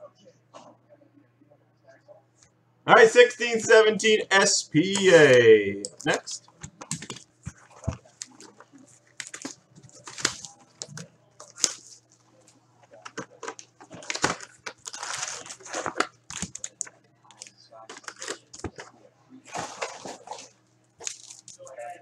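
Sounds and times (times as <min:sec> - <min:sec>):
cardboard packaging crinkling: 0:06.9 - 0:12.0, 0:12.9 - 0:16.9, 0:19.7 - 0:21.6.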